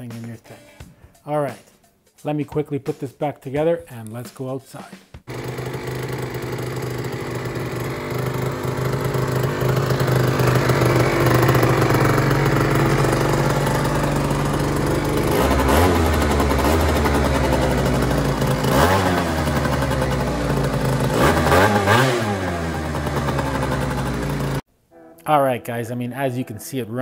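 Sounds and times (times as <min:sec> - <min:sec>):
scooter engine revving: 0:05.3 - 0:24.6.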